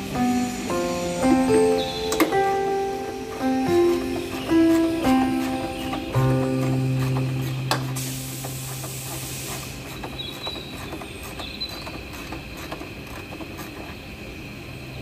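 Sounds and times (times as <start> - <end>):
hand tools clicking on metal: 3.0 - 14.0
short hiss: 7.8 - 10.0.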